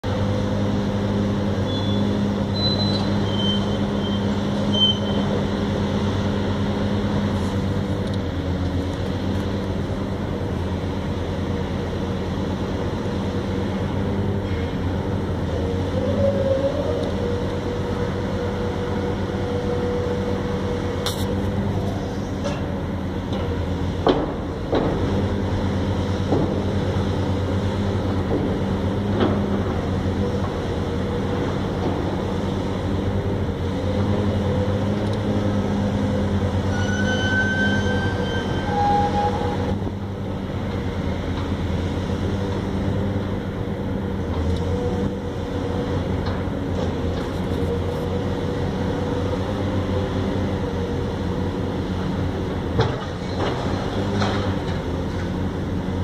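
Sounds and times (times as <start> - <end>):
diesel engine droning: 0.0 - 56.0
high squeal: 1.7 - 5.2, 36.6 - 39.8.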